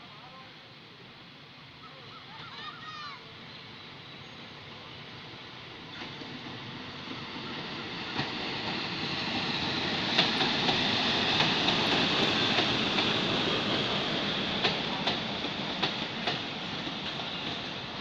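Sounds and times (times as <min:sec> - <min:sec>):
train passing rumble: 0:00.0 - 0:18.0
wheels clicking over rail joints: 0:07.1 - 0:18.0.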